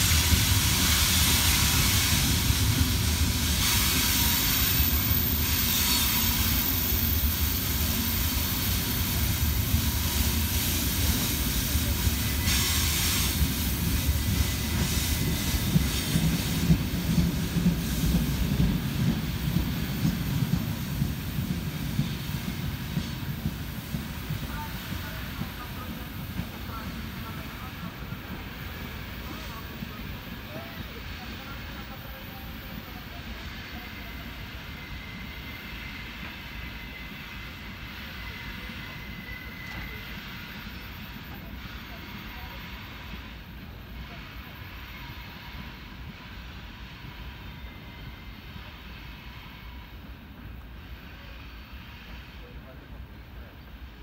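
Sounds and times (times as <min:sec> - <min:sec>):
freight train rumbling by: 0:00.0 - 0:54.0.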